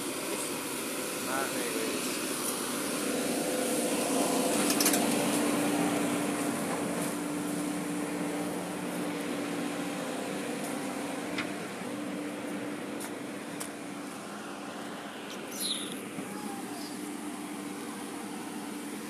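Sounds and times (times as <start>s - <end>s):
excavator diesel engine running: 0.0s - 19.0s.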